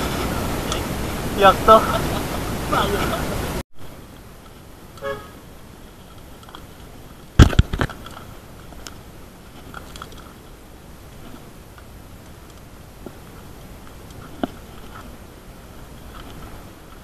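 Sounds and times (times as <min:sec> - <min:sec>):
faint steady hiss: 0:00.0 - 0:17.0
sharp knocks of bicycle camera: 0:07.4 - 0:08.0.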